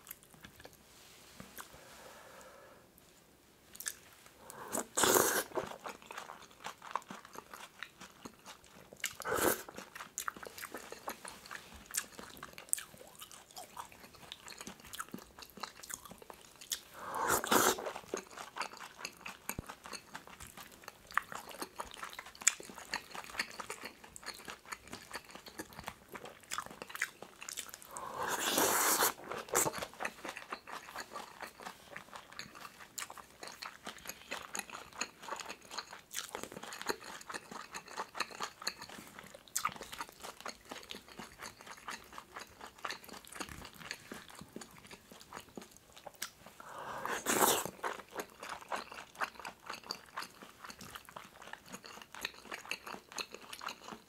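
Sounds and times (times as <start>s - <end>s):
close chewing and mouth sounds: 0.0s - 1.9s, 2.9s - 54.0s.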